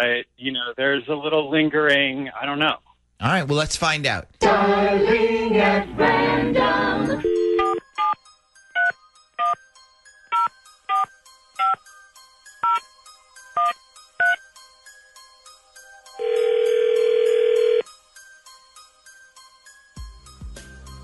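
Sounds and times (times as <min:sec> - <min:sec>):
soft background music: 0:03.5 - 0:21.0
telephone ringing tone: 0:07.2 - 0:07.9, 0:16.2 - 0:17.9.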